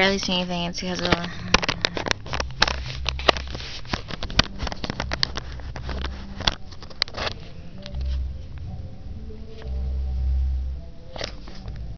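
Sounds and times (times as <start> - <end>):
phone handling noise: 0.9 - 8.2
low rumble: 1.2 - 11.9.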